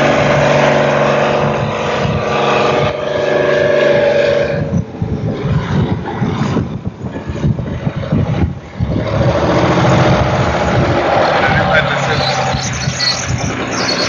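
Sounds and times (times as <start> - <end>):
road roller engine humming: 0.0 - 6.2, 6.8 - 14.0
motor grader engine rumbling: 0.0 - 14.0.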